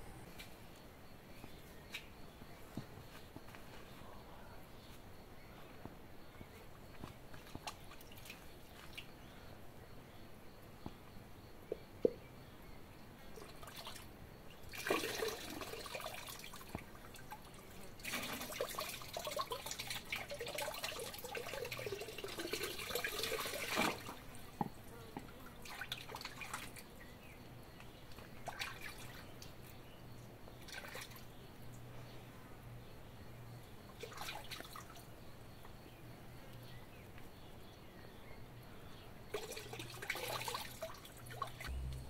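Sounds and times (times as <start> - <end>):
water pouring into a washtub: 14.7 - 16.7, 18.0 - 24.2, 39.3 - 41.7.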